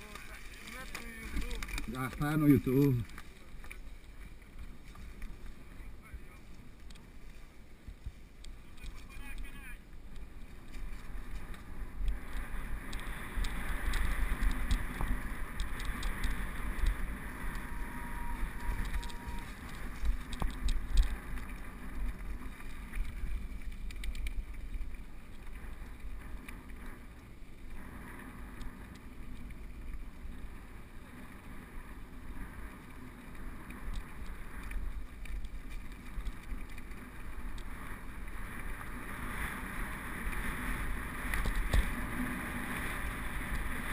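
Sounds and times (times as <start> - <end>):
tyres rumbling on gravel: 0.0 - 7.9, 8.5 - 43.9
bike clicking and rattling: 0.0 - 43.9
wind on camera: 0.0 - 43.9.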